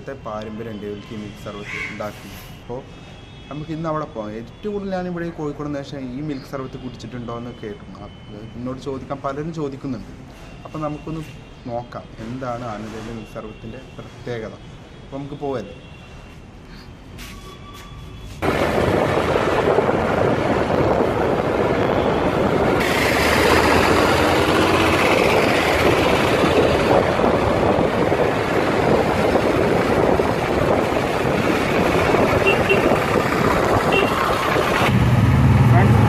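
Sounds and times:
road noise: 0:00.0 - 0:36.0
wind on microphone: 0:18.4 - 0:35.0.

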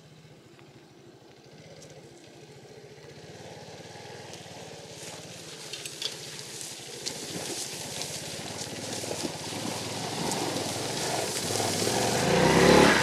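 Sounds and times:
small motorcycle engine: 0:00.0 - 0:13.0
dry reeds rustling: 0:04.9 - 0:12.8.

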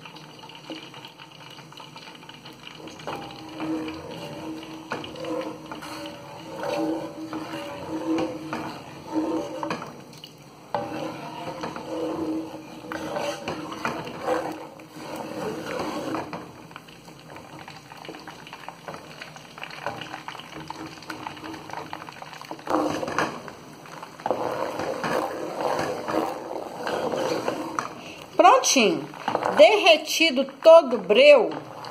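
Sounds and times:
spoon swishing through oil: 0:02.7 - 0:30.0
spoon scraping metal pot: 0:02.8 - 0:10.0, 0:10.7 - 0:16.6, 0:19.8 - 0:31.9.

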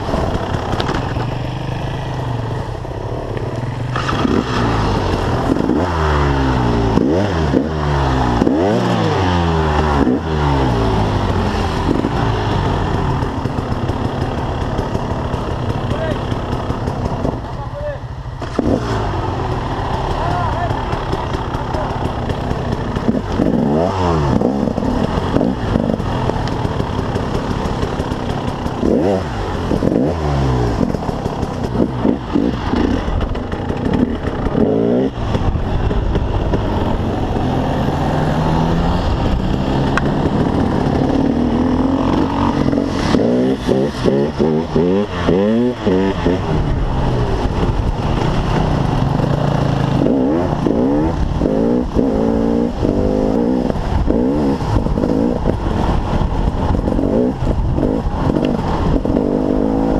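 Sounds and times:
two-stroke engine revving: 0:00.0 - 0:59.9.

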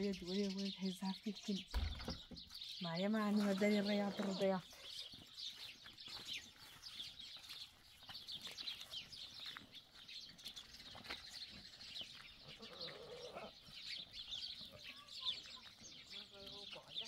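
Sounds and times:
small birds chirping: 0:00.0 - 0:17.0
farm animal call: 0:12.1 - 0:17.0.

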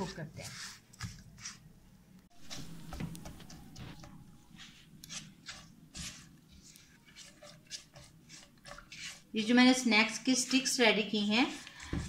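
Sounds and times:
spatula scraping a pan: 0:00.0 - 0:01.6, 0:04.5 - 0:12.0.

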